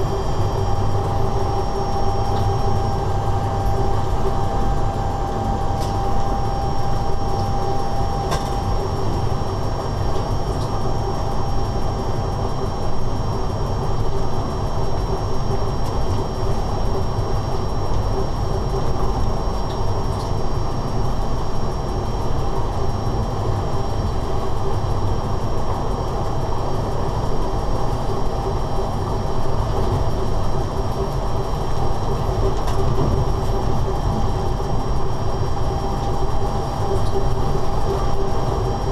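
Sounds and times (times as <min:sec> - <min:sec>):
thin high whine: 0:00.0 - 0:10.5
locomotive cab rumble and rattle: 0:29.6 - 0:38.6.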